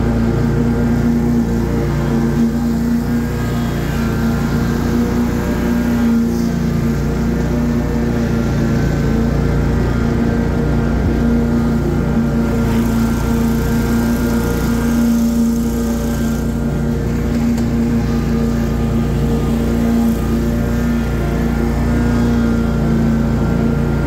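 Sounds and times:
lawn mower engine running: 0.0 - 24.0.

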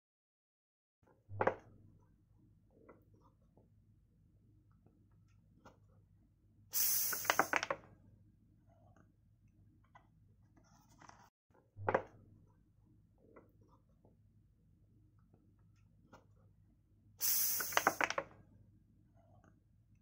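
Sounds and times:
gas hissing from bottle: 6.8 - 7.7, 17.2 - 18.2
bottle cap crackling clicks: 6.8 - 7.8, 17.2 - 18.2.

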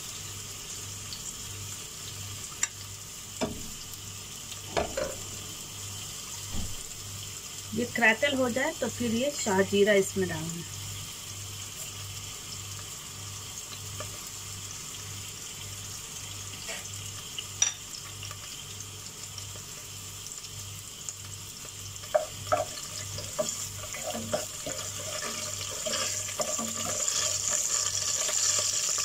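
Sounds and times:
spices sizzling in hot oil: 0.0 - 29.0
spoon stirring: 22.1 - 28.6.

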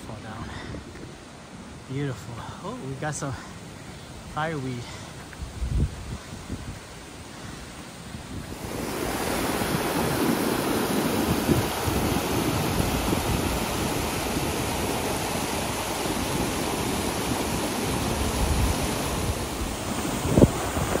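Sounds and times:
wind buffeting microphone: 0.0 - 1.7, 5.2 - 21.0
waterfall rushing: 6.9 - 21.0.

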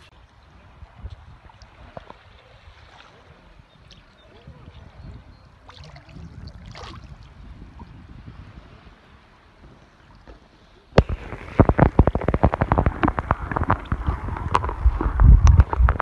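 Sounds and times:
water sloshing and bubbling: 0.0 - 16.0
dense crackling clicks: 11.0 - 16.0.

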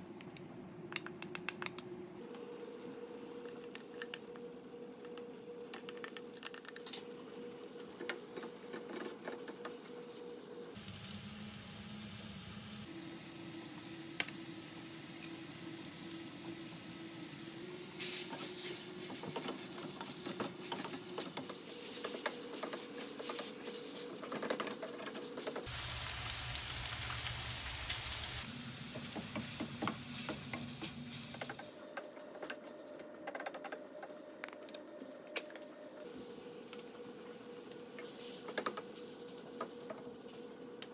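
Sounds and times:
noodles sizzling in a pan: 10.1 - 24.1, 25.6 - 31.8.

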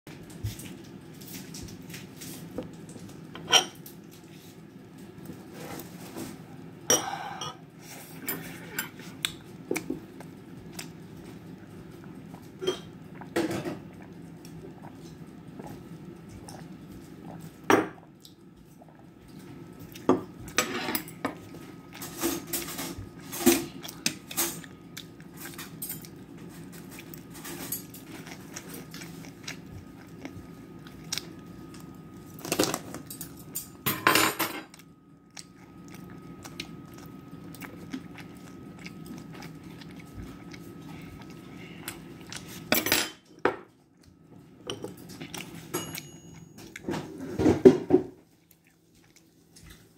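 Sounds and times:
spoon and chopsticks clinking on dishes: 45.7 - 46.7.

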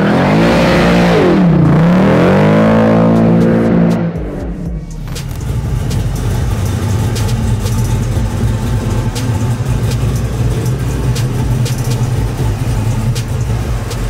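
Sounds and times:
car engine idling: 0.0 - 14.0.

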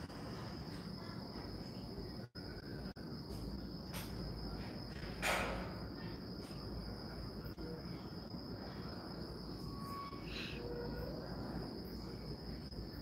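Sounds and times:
high-pitched insect trill: 7.1 - 13.0.

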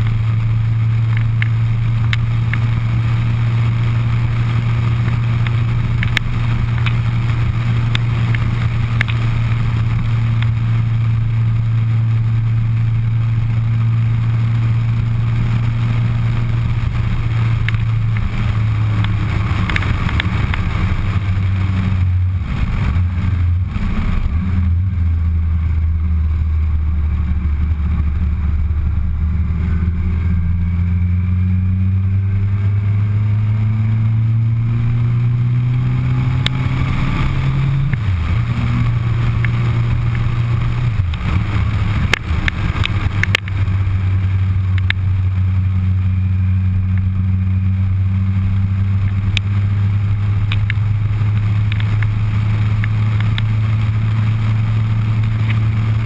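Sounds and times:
motorcycle engine accelerating: 0.0 - 56.0
sharp ticks: 5.0 - 7.1, 7.8 - 9.3, 17.6 - 21.0, 41.0 - 43.6, 50.5 - 50.8.

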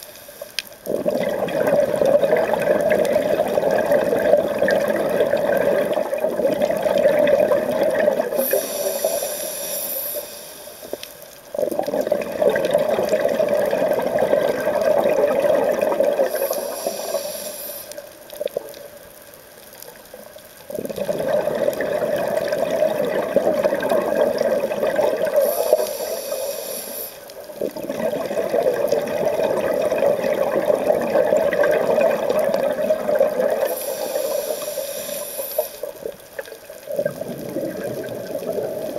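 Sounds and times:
bubbling exhale underwater: 0.8 - 10.3, 11.5 - 18.8, 20.7 - 38.9
hissing regulator inhale: 8.3 - 11.2, 16.3 - 18.0, 25.4 - 27.3, 33.6 - 36.0.

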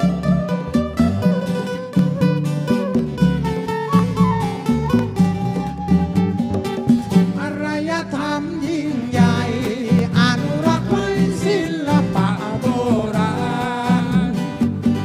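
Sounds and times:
bass and beat: 0.0 - 7.8, 9.1 - 15.0
strummed guitar: 0.0 - 15.0
person singing: 7.2 - 14.6.

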